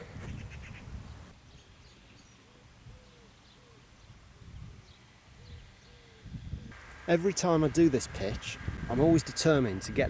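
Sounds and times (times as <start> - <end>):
pigeon cooing: 2.5 - 3.9.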